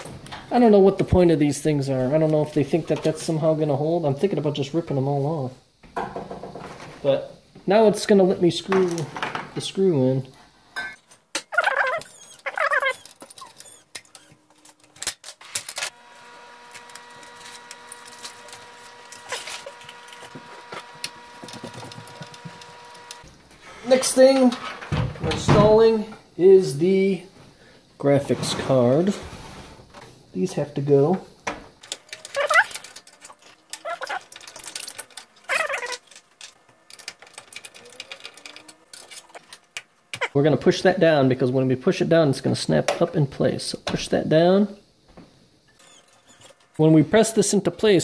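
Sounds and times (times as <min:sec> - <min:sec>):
squeaky screw scrape: 0:11.8 - 0:14.8, 0:32.1 - 0:36.2, 0:45.7 - 0:46.7
metallic clicks and rattles: 0:31.8 - 0:39.8.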